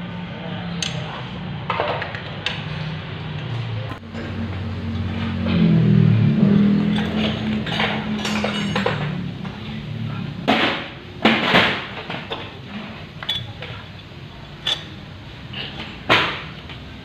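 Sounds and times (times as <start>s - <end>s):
metal tools clinking on engine: 6.6s - 9.3s, 13.2s - 15.0s.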